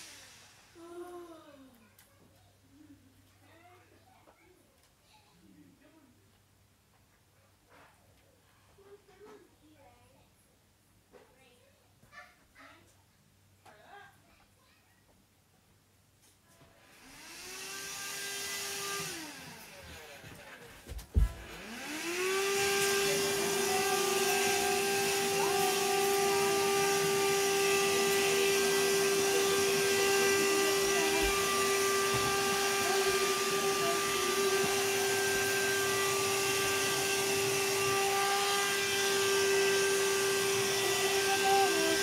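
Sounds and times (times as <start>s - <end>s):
vacuum cleaner running: 0.0s - 1.2s, 16.8s - 42.0s.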